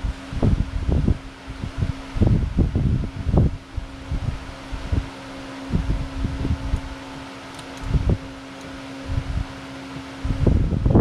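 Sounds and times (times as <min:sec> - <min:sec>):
cooling fans humming: 0:00.0 - 0:11.0
short low rumbles: 0:05.7 - 0:08.4.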